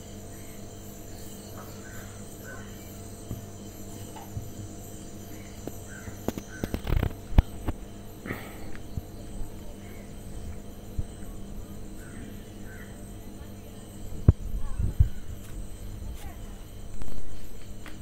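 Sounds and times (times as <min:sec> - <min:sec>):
crow cawing: 0:05.9 - 0:06.9, 0:12.0 - 0:13.0.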